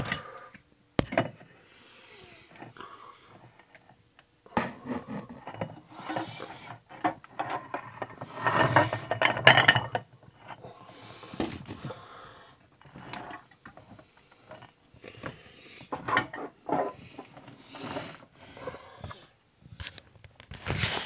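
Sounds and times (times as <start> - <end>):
objects rubbing and scraping: 4.5 - 12.0, 12.8 - 21.0.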